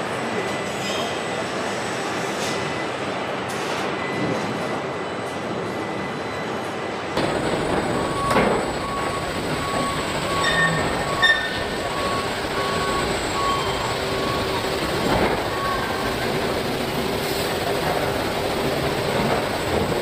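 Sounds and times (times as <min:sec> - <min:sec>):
machinery hum and clatter: 0:00.0 - 0:20.0
short electronic beeps: 0:07.4 - 0:16.1.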